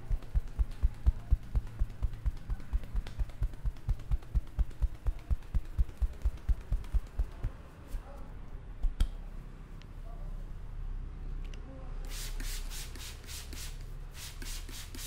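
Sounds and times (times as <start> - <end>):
hands tapping on head: 0.0 - 7.6
hair rubbing: 0.0 - 8.0, 12.1 - 15.0.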